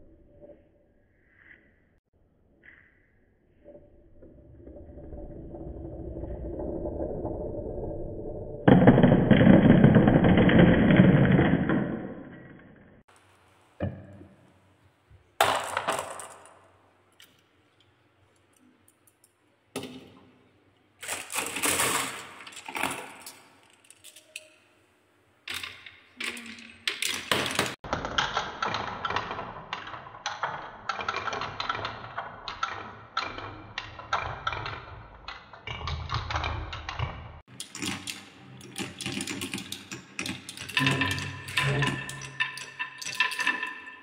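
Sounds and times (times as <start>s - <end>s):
marbles clattering together: 15.4s - 16.8s, 21.0s - 24.6s, 37.5s - 44.0s
marbles rolling down wooden run: 37.5s - 44.0s.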